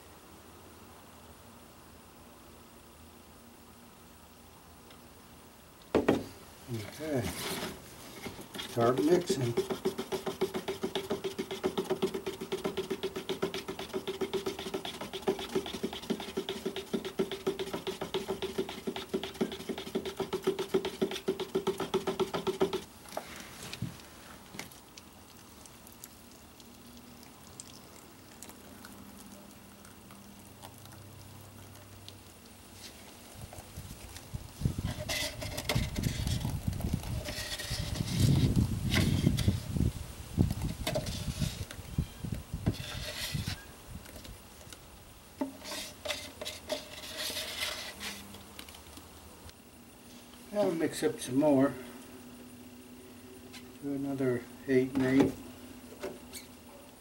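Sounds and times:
cup scraping and knocking: 0:06.8 - 0:23.9, 0:34.8 - 0:39.6, 0:40.5 - 0:41.7, 0:42.6 - 0:43.7, 0:45.4 - 0:48.2
stick rattling in plastic cup: 0:08.2 - 0:22.9.

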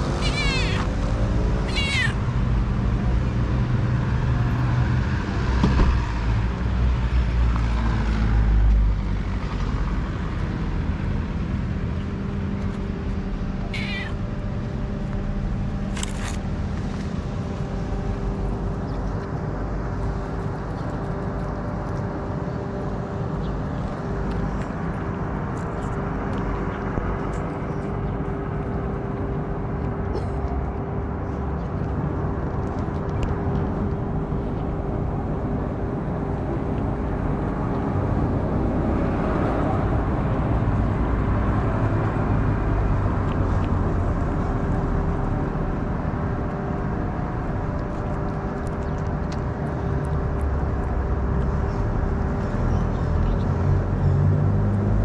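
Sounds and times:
cat meowing: 0:00.2 - 0:00.9, 0:01.7 - 0:02.2, 0:13.7 - 0:14.2
steady hum: 0:10.0 - 0:53.2.

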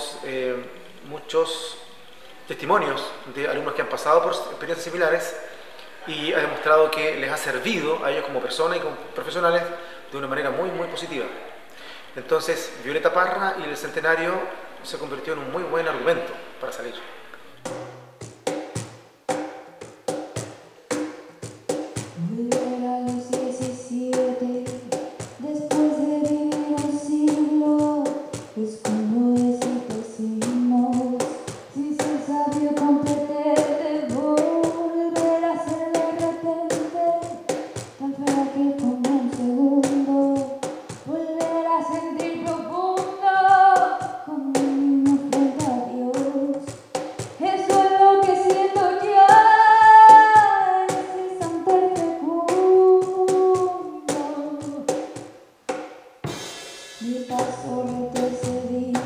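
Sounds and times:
instrumental accompaniment: 0:00.0 - 0:59.0
girl singing into a microphone: 0:22.1 - 0:55.2, 0:57.0 - 0:59.0.

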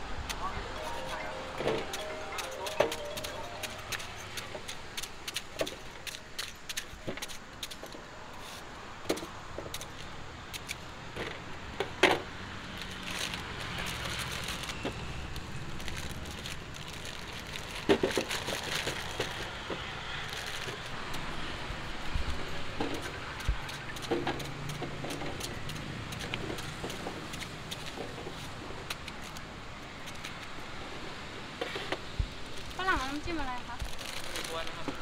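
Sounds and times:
plastic bag rustling: 0:15.6 - 0:19.6, 0:33.8 - 0:34.8.

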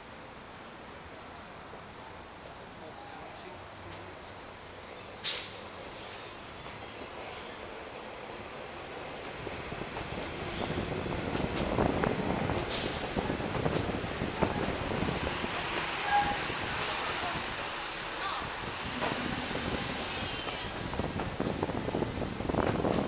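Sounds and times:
bus engine rumble: 0:00.0 - 0:23.0
street traffic: 0:00.0 - 0:23.0
bus air brake hiss: 0:04.2 - 0:07.6, 0:12.6 - 0:13.3, 0:16.0 - 0:17.2.

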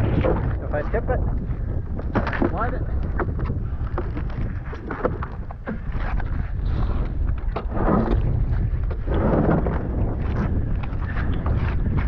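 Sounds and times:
hull scraping on ice: 0:00.0 - 0:12.0
wind buffeting microphone: 0:00.0 - 0:12.0
knocks of hull on ice: 0:02.0 - 0:06.3.

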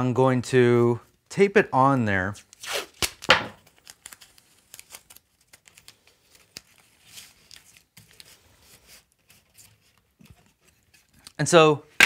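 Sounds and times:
tape crinkling and clicking: 0:02.4 - 0:08.4, 0:09.1 - 0:11.4.

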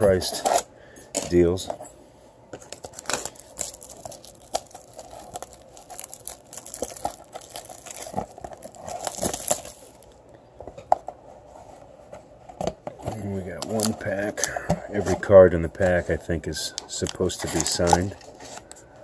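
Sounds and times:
plastic shrink-wrap crinkling: 0:02.6 - 0:10.2, 0:17.0 - 0:18.7.

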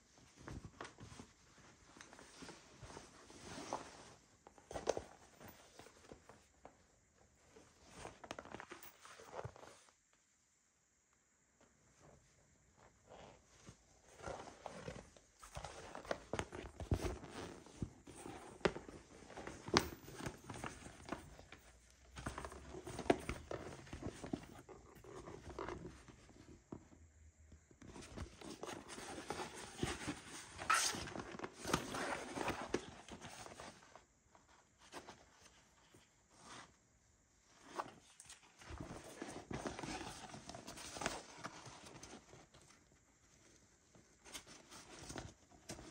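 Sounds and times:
bag and box rustling: 0:13.5 - 0:26.3, 0:27.9 - 0:34.0, 0:37.6 - 0:42.8.

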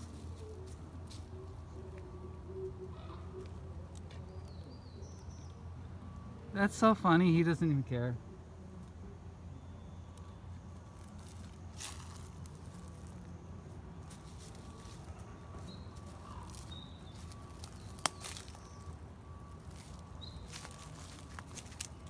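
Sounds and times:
faint rustling in undergrowth: 0:00.0 - 0:04.8, 0:10.0 - 0:22.0
steady low rumble: 0:08.2 - 0:22.0.

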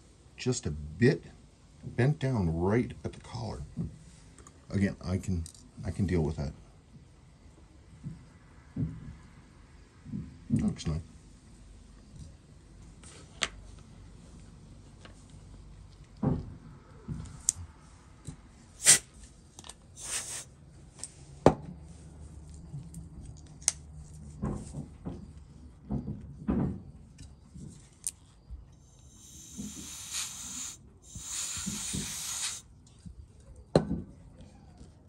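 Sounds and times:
steady hiss: 0:20.0 - 0:20.6, 0:28.8 - 0:32.7.

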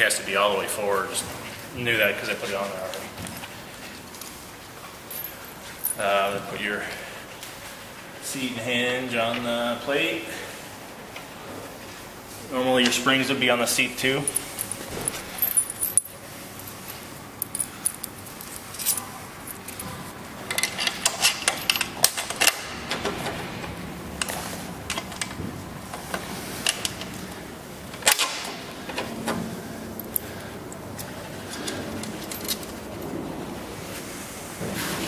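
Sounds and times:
small metal parts clinking: 0:05.1 - 0:06.0, 0:14.2 - 0:22.6, 0:31.5 - 0:33.1.

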